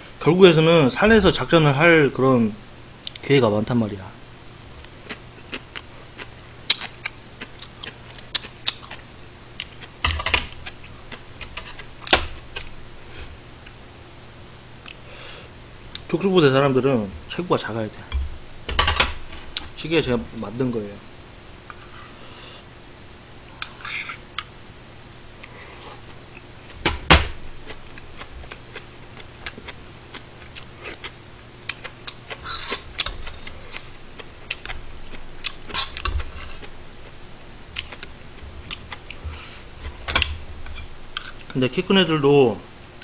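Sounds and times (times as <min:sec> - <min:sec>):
chewing: 0:04.8 - 0:09.0, 0:27.6 - 0:40.0.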